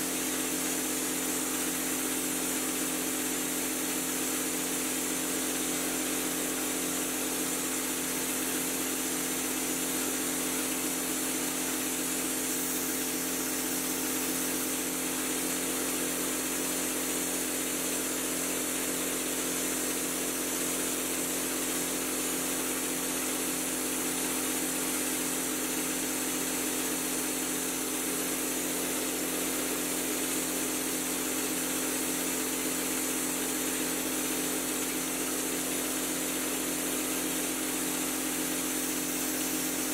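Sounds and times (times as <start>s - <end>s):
air hissing: 6.8s - 16.8s, 38.5s - 39.9s.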